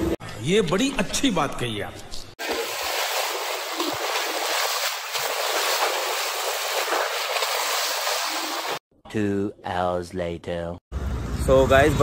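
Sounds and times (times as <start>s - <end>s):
water rushing along boat hull: 2.4s - 8.8s.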